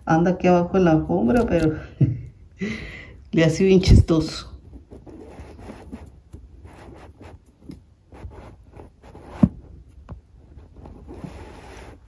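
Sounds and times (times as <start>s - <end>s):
scratching on a rug: 4.6s - 12.0s.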